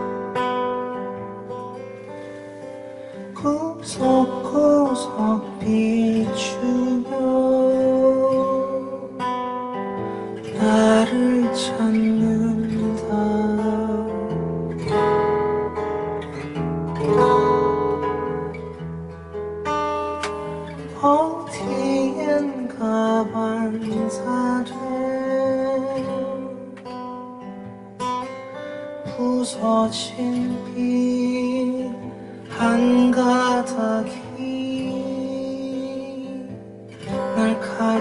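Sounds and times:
acoustic guitar: 0.0 - 38.0
man singing: 3.2 - 9.3, 10.4 - 14.4, 20.6 - 26.9, 29.0 - 38.0.

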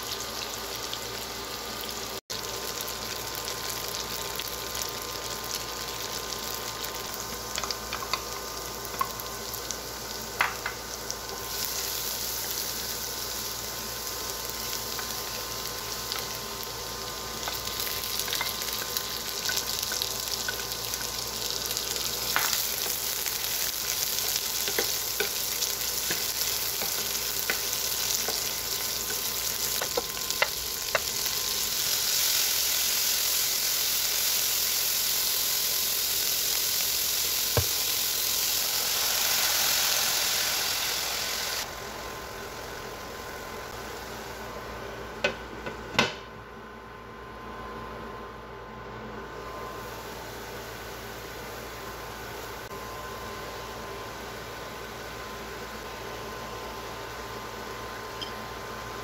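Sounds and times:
food sizzling in hot oil: 0.0 - 44.6.

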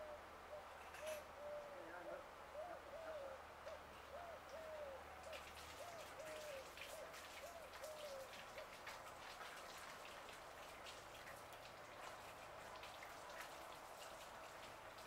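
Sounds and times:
bird hooting call: 0.0 - 5.0.

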